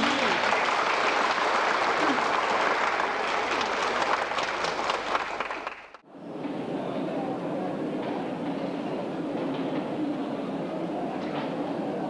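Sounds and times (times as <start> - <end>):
audience applauding: 0.0 - 6.0.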